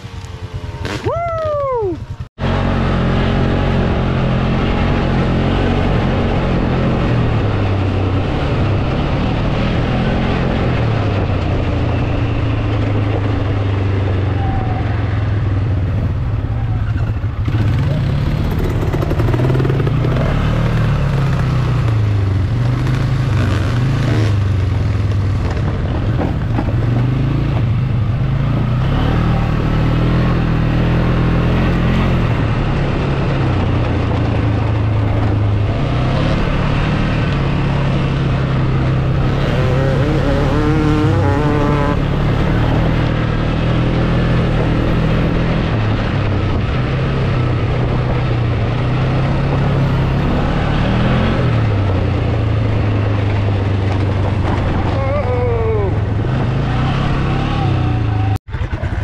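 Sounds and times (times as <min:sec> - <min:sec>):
vehicle engine revving: 0:00.0 - 0:59.0.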